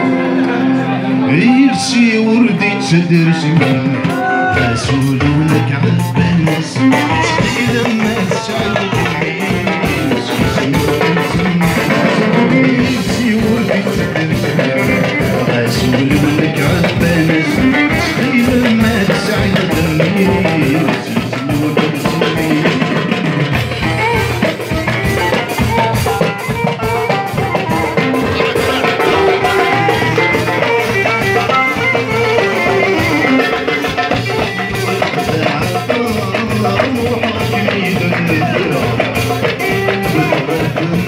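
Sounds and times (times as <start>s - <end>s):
man singing: 0.0s - 41.0s
drum kit steady beat: 1.3s - 41.0s
oud playing: 23.7s - 36.0s.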